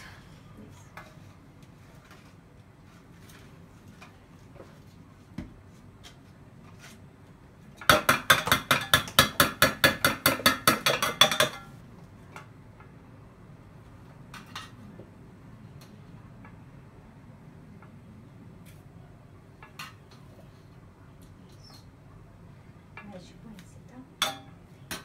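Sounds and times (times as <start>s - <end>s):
spoon clanging against metal pot: 7.8s - 11.7s, 24.2s - 25.0s
utensils clinking: 10.5s - 11.7s.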